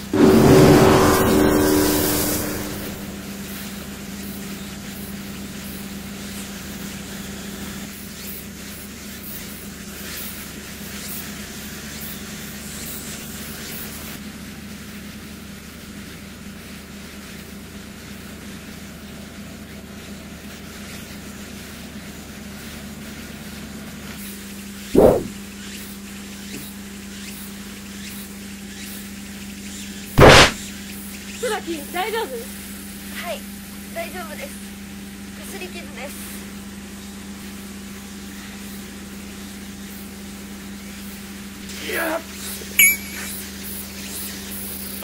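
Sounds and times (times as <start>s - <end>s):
brief loud sound: 0.0s - 3.6s, 25.0s - 25.4s, 30.2s - 30.6s
low hum: 0.0s - 3.8s, 25.0s - 25.4s.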